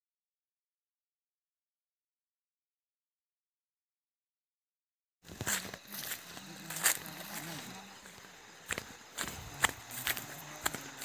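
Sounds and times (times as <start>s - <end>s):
footsteps crunching dry leaves: 5.2s - 11.0s.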